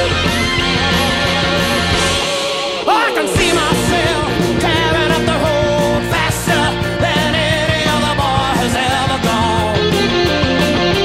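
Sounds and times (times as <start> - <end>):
rock band playing: 0.0 - 11.0
wavering lead melody: 2.9 - 7.6.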